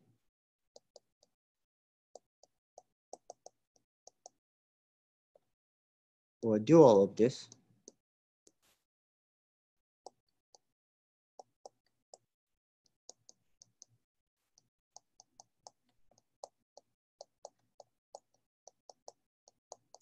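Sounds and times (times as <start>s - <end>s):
stylus tapping on tablet screen: 2.2s - 4.4s, 14.6s - 20.0s.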